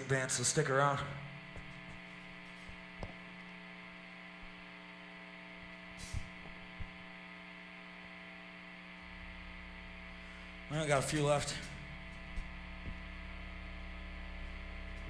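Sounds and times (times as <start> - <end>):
amplifier electrical hum: 0.0 - 15.0
short hiss: 5.9 - 6.4.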